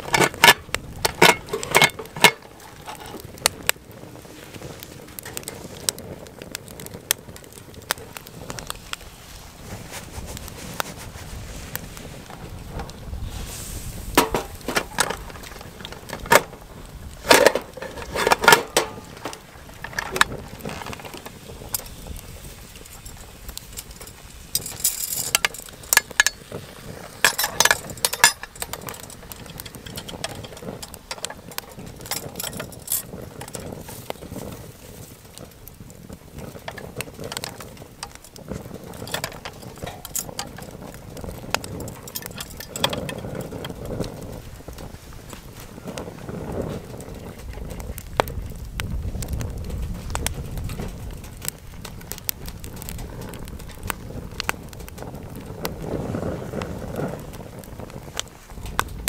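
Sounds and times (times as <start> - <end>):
metal cookware clinking: 0.1 - 3.0, 27.3 - 30.5.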